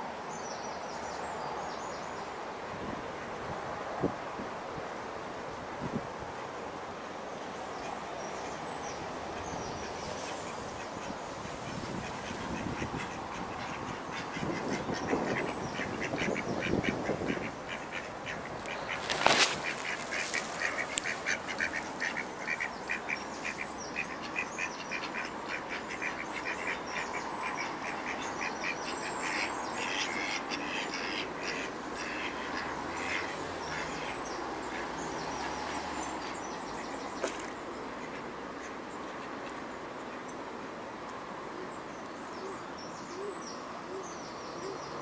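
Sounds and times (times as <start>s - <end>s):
ducks quacking: 10.8s - 34.9s.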